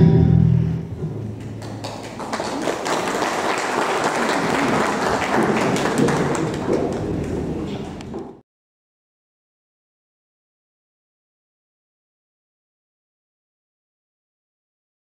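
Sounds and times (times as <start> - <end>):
audience applauding: 1.4 - 8.1.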